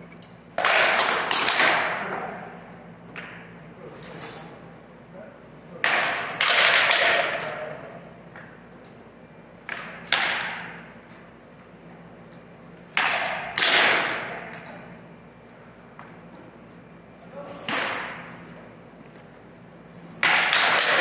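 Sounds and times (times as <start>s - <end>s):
rattan sword blows cracking: 20.2s - 21.0s.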